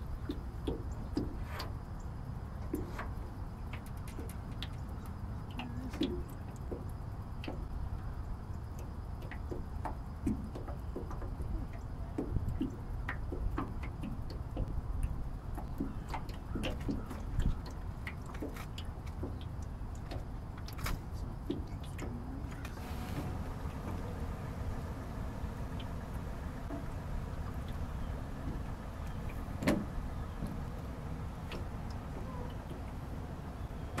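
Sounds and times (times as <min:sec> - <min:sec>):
water lapping against boat: 0:00.0 - 0:34.0
light ticks and clicks: 0:00.2 - 0:22.8
steady low rumble: 0:22.2 - 0:34.0.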